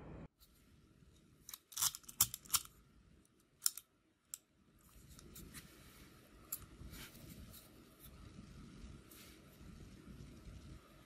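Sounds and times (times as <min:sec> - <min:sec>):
padlock metallic clicks and snaps: 0:01.5 - 0:02.7, 0:03.6 - 0:04.4.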